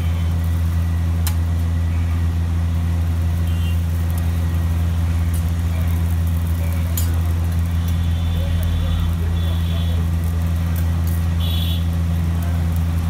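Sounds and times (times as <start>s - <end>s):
metal spatula tapping griddle: 6.9s - 7.2s.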